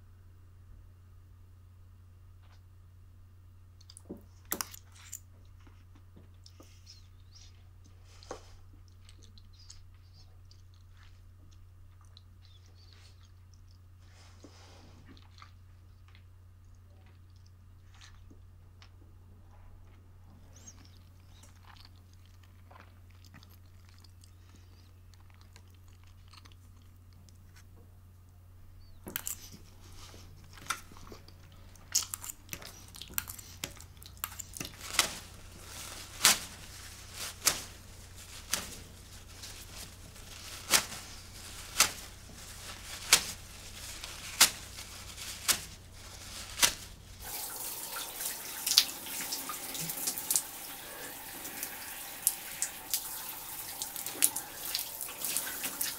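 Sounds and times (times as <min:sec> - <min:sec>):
faint low hum: 0:00.0 - 0:55.9
shower running: 0:32.6 - 0:55.9.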